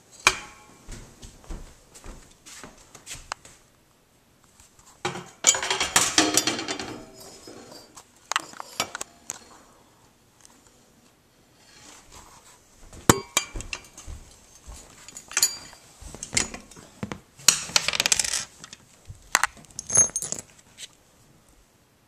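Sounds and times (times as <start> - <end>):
metal hardware clinks and knocks: 13.1 - 16.8, 19.4 - 20.5.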